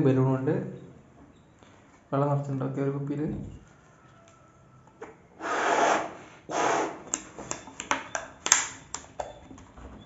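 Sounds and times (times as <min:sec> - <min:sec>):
fingers clicking on balloon: 0:06.9 - 0:09.4.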